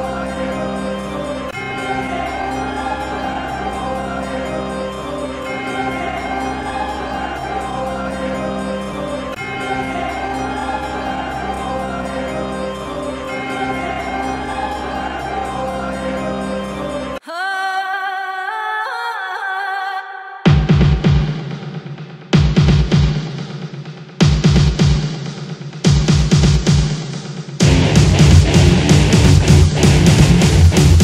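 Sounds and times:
layered chords over low bass: 27.6 - 31.0.

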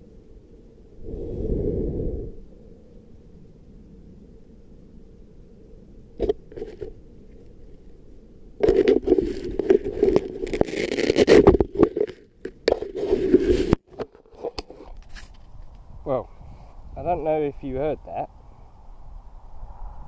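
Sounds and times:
fingers scraping camera body: 8.6 - 13.8.

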